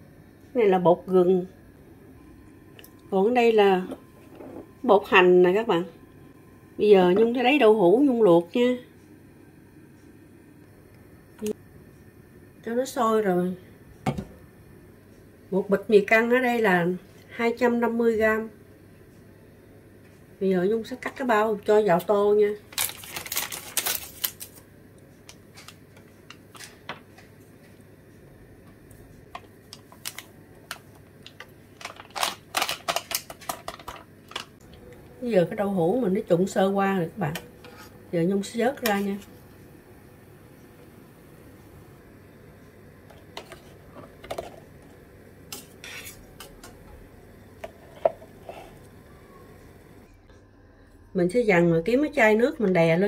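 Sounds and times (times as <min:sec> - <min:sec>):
paper packet crinkling: 0:22.6 - 0:24.6, 0:29.7 - 0:34.6.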